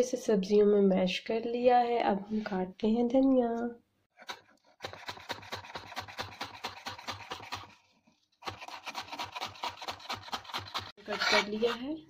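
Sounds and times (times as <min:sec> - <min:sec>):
knife chopping on wooden board: 0:04.8 - 0:07.8, 0:08.4 - 0:11.8.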